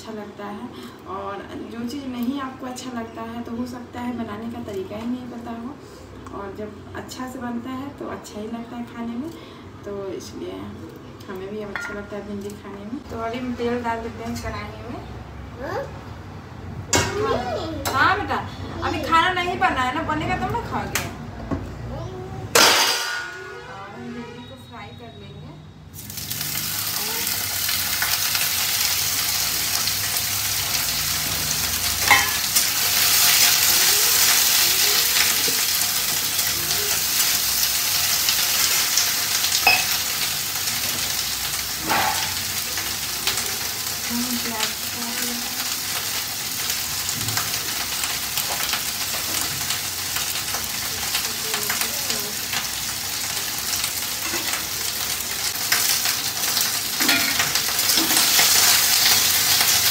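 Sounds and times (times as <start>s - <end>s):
vegetables sizzling in hot oil: 25.9s - 59.9s.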